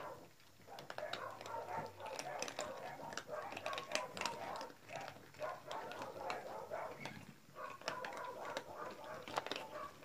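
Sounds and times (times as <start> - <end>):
cats crunching dry food: 0.0 - 10.0.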